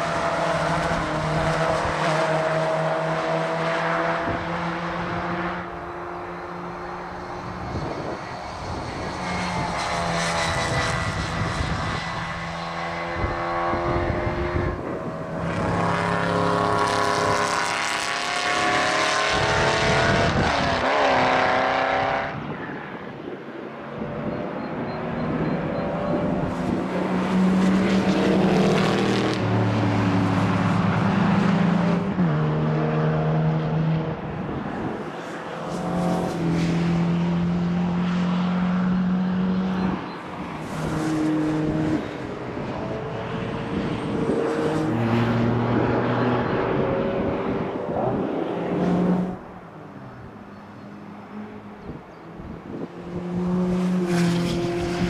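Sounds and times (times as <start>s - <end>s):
race cars passing at high revs: 0.0s - 55.0s
wind buffeting microphone: 7.2s - 17.6s, 18.5s - 29.6s, 34.0s - 35.6s, 39.7s - 55.0s.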